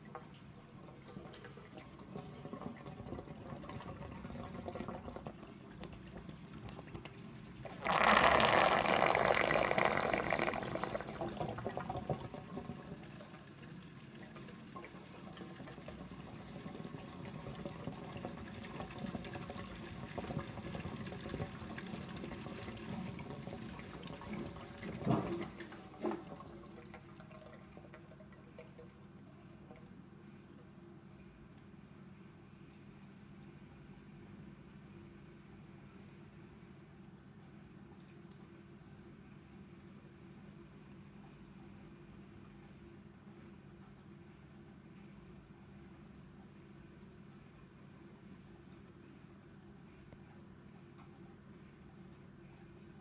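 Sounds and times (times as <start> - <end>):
water trickling and gurgling: 0.0 - 31.4.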